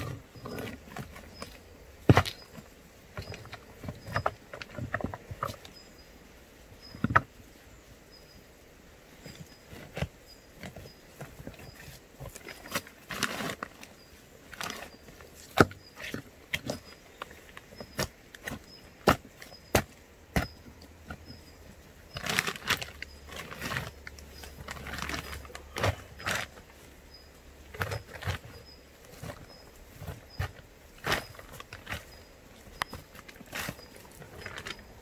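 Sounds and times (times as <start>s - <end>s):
rocks knocking together: 0.0s - 5.7s, 14.6s - 21.5s, 27.6s - 35.0s.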